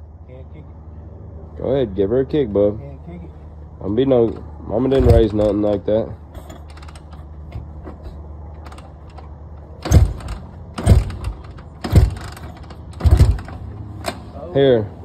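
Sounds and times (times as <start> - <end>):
engine turning over: 4.3 - 14.4
dirt bike kick-starter stomps: 9.8 - 14.2.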